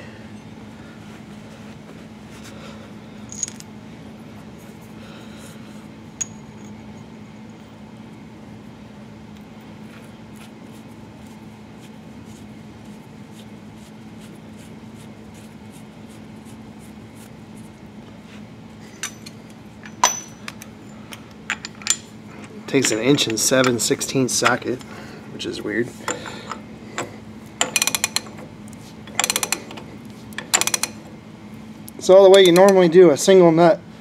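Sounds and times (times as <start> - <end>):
steady low hum: 0.0 - 34.0
sharp metallic clinks: 18.8 - 20.6.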